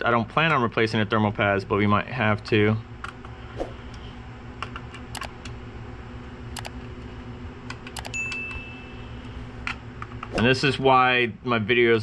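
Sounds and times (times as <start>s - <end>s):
steady low hum: 0.0s - 12.0s
sharp clicks: 4.7s - 5.6s.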